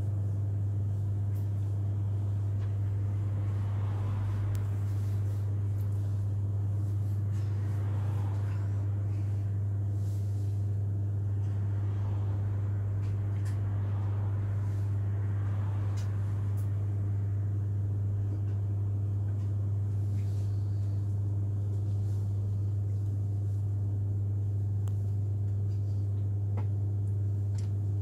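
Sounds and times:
low hum: 0:00.0 - 0:28.0.

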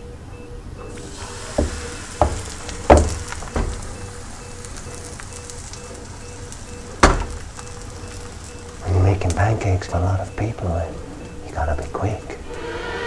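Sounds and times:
batter sizzling in frying pan: 0:00.9 - 0:11.5
sharp knocks: 0:01.6 - 0:04.0, 0:07.0 - 0:07.5.

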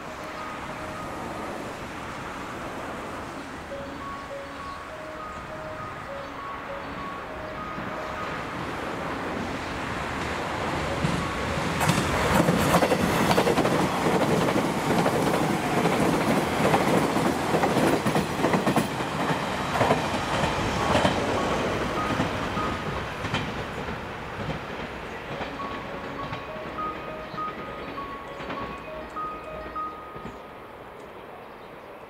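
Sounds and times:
train wheels clattering over rail joints: 0:10.1 - 0:26.5.

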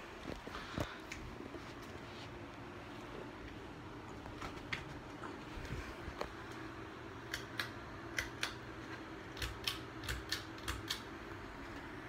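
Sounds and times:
ceiling fan motor hum: 0:00.0 - 0:12.0
sharp clicks in pairs: 0:07.3 - 0:08.6, 0:09.3 - 0:11.1.

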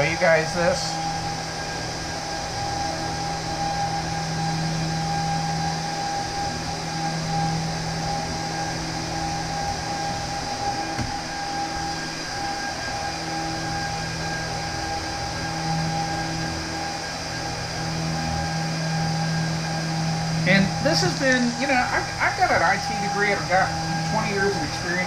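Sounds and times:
server fans whirring: 0:00.0 - 0:25.0
steady whine: 0:00.0 - 0:25.0
soft knock: 0:11.0 - 0:11.2.

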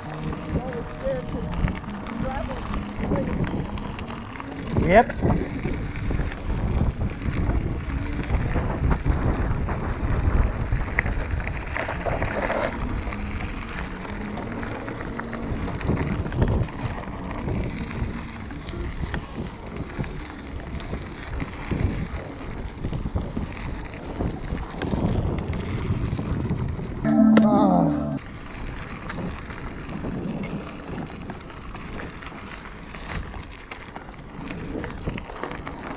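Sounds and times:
tyres crunching over gravel: 0:00.0 - 0:06.6
bike rattling: 0:00.0 - 0:27.0, 0:28.3 - 0:35.9
wind buffeting microphone: 0:00.0 - 0:27.1.

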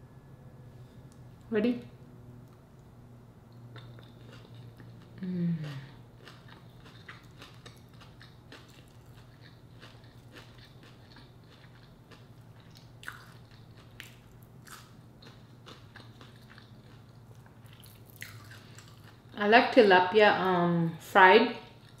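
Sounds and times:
chewing: 0:03.5 - 0:19.4, 0:21.7 - 0:22.0.

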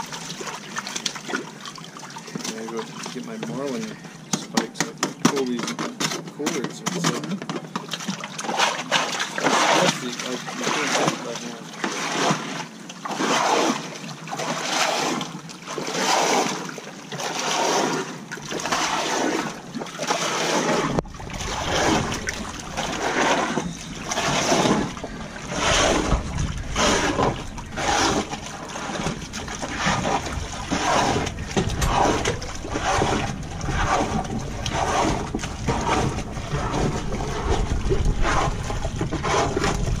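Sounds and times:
water sloshing against hull: 0:00.0 - 0:40.0
wind rumble on microphone: 0:20.8 - 0:40.0.

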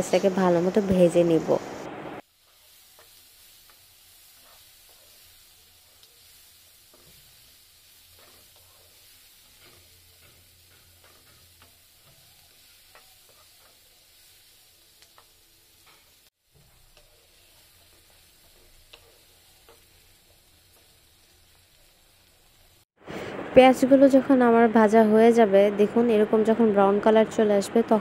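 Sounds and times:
onions sizzling in oil: 0:02.2 - 0:22.9
wooden spatula scraping pan: 0:02.4 - 0:13.9.

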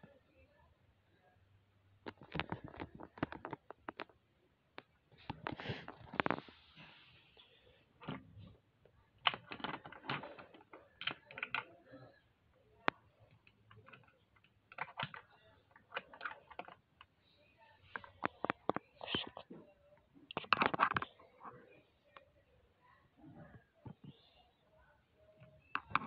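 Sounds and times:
crabs clicking on plastic bricks: 0:12.8 - 0:17.1.

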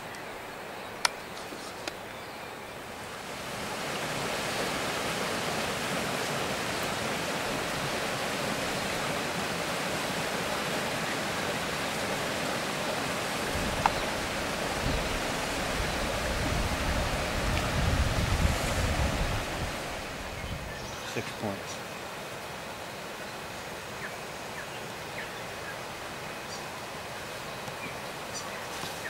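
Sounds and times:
outdoor hiss: 0:00.0 - 0:29.0
waterfall rushing: 0:02.8 - 0:29.0.

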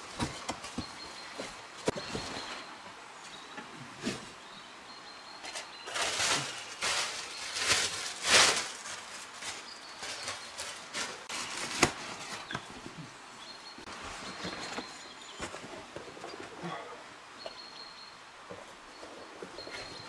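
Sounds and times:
dry leaves rustling and crunching: 0:05.5 - 0:12.5.

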